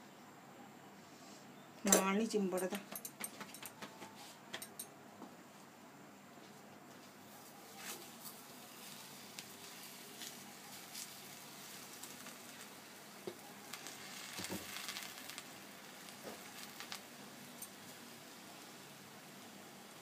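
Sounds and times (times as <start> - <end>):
flatbread sizzling on a griddle: 6.9 - 20.0.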